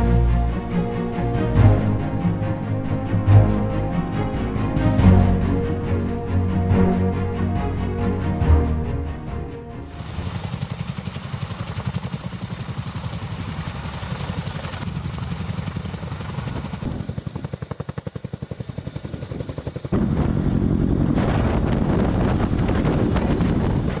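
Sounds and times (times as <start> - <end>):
helicopter rotor blades beating: 0.0 - 24.0
high turbine engine whine: 9.8 - 24.0.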